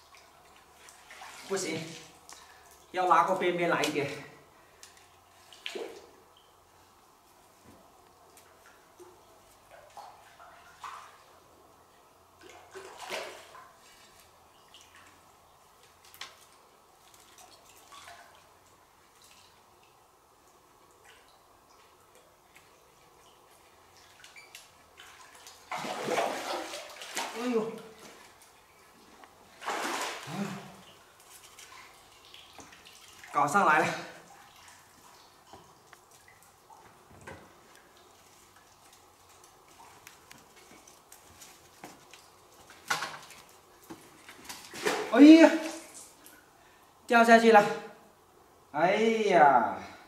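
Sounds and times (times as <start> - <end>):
fish splashing in water: 23.2 - 27.5, 29.5 - 33.4.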